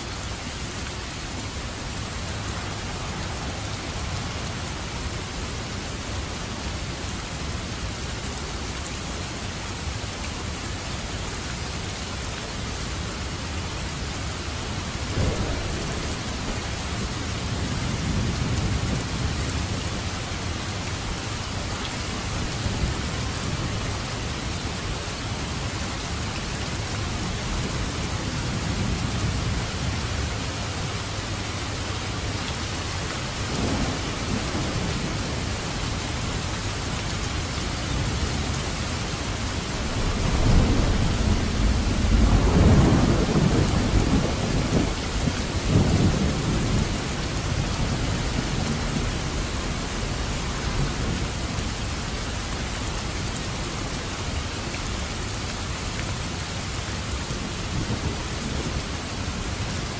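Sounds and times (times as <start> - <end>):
heavy rain falling: 0.0 - 59.9
thunder rolling: 39.6 - 46.9.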